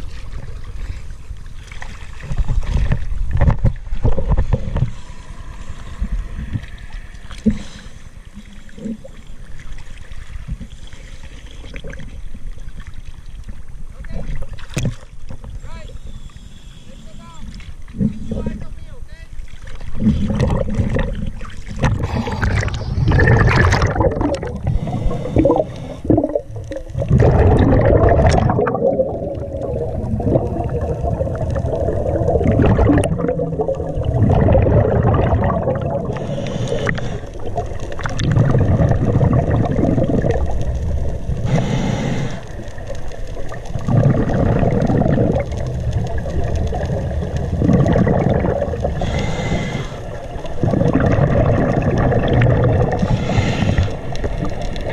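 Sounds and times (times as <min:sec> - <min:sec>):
exhaled bubbles rumbling: 0:00.0 - 0:15.7, 0:17.2 - 0:18.7, 0:19.4 - 0:54.9
water sloshing and splashing: 0:00.0 - 0:15.9, 0:17.2 - 0:41.7, 0:42.4 - 0:49.2, 0:50.0 - 0:54.9
diver breathing through regulator: 0:04.2 - 0:09.4, 0:15.9 - 0:18.6, 0:21.8 - 0:26.5, 0:35.8 - 0:37.6, 0:41.4 - 0:42.8, 0:48.8 - 0:51.0, 0:52.8 - 0:54.9.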